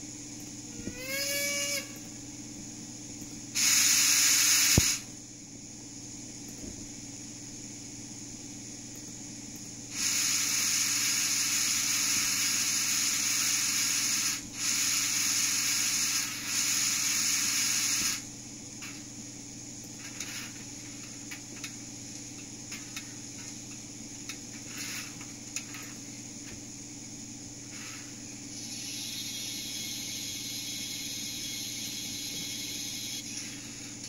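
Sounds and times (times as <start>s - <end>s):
steam hiss: 3.6s - 5.1s, 9.9s - 18.2s, 24.7s - 25.2s, 27.7s - 34.0s.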